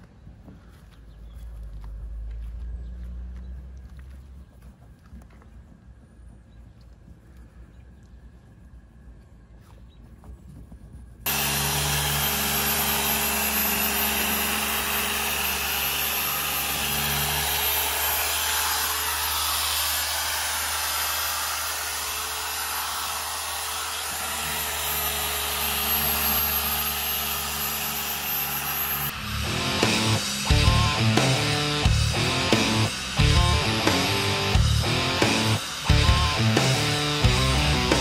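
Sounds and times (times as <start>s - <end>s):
electric polisher sanding hull: 11.3s - 38.0s.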